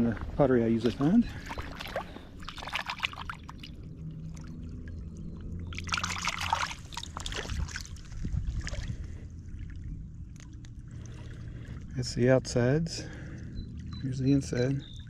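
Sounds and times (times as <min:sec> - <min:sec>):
low steady rumble: 0:00.0 - 0:15.0
water splashing: 0:00.8 - 0:11.8.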